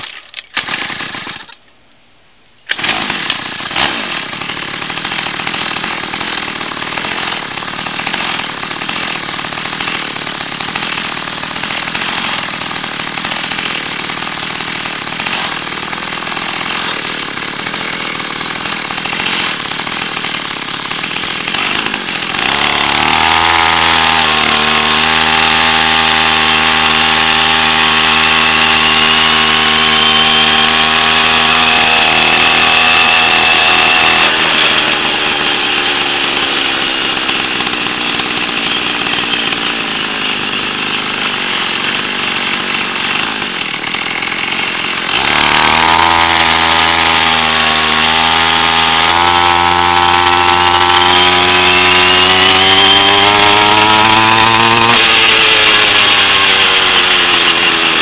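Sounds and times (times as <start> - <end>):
small two-stroke engine buzzing: 2.7 - 58.0.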